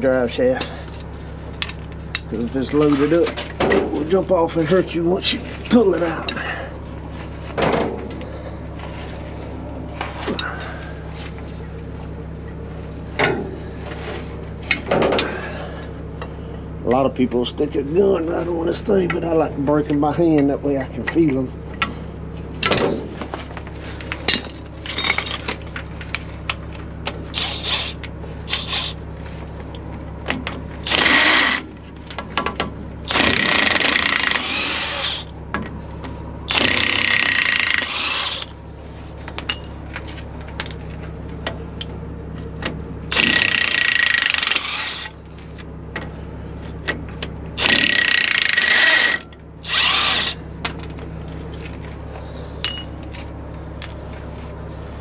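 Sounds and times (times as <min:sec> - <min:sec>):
cordless power tool whirring: 0:27.3 - 0:29.0, 0:30.8 - 0:31.7, 0:33.1 - 0:35.3, 0:36.5 - 0:38.5, 0:43.1 - 0:45.2, 0:47.6 - 0:50.4.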